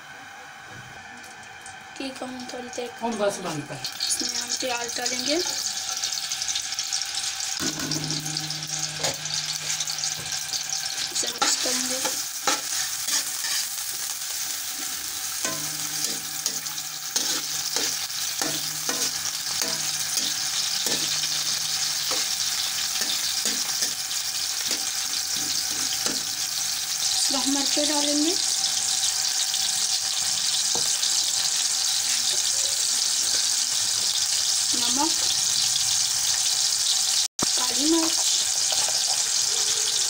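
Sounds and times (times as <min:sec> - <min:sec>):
onions sizzling in pan: 0:00.5 - 0:40.0
spatula scraping a pan: 0:07.8 - 0:27.1.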